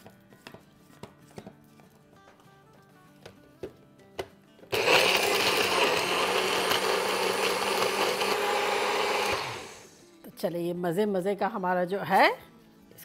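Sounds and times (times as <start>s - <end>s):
blender grinding: 4.7s - 10.0s.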